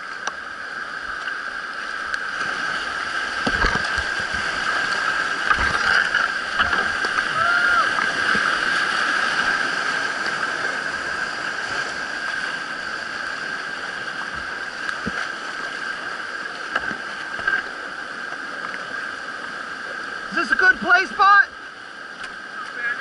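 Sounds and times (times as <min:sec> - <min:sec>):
whitewater rapids rushing: 0:02.0 - 0:18.0, 0:18.8 - 0:23.0.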